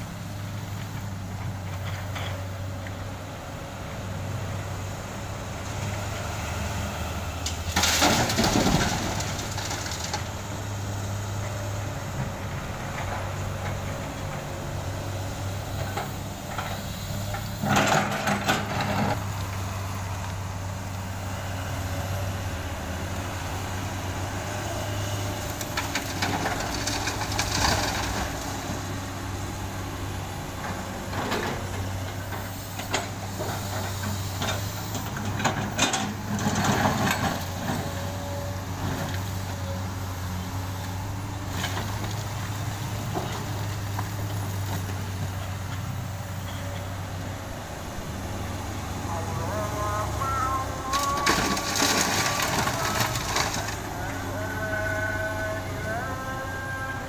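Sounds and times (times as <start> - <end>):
excavator diesel engine running: 0.0 - 57.0
asphalt chunks clattering and scraping: 7.6 - 10.4, 25.4 - 28.9, 32.8 - 38.0, 49.2 - 56.2.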